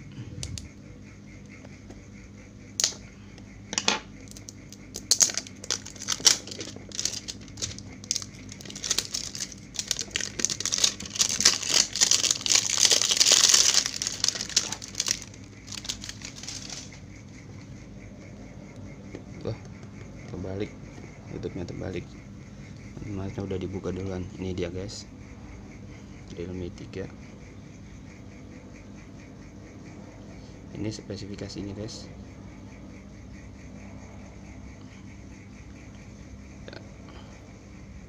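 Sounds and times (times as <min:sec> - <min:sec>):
plastic shrink-wrap crinkling: 0:04.3 - 0:16.9.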